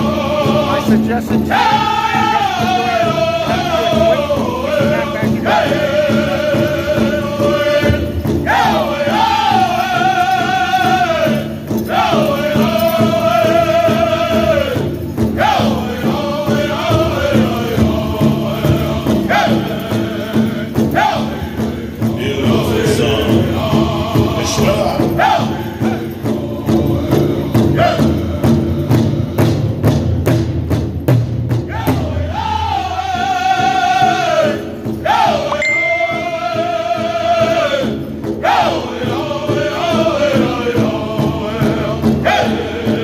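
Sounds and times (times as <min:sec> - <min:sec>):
large drum beating: 0:00.0 - 0:10.2
men singing in high voices: 0:00.0 - 0:29.8, 0:31.6 - 0:43.0.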